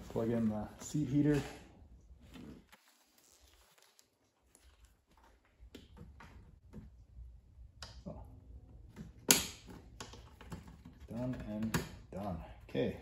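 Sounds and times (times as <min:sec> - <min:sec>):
rustling of padding and fabric: 0:00.0 - 0:06.7.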